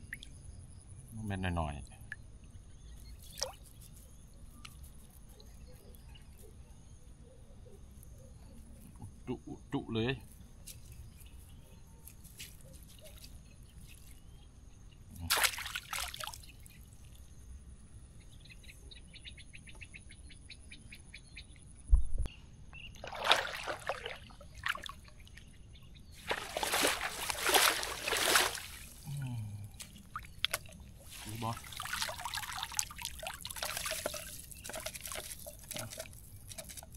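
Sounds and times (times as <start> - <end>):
water splashing and sloshing: 15.3 - 17.2, 22.9 - 25.4, 26.2 - 29.2, 29.8 - 36.9.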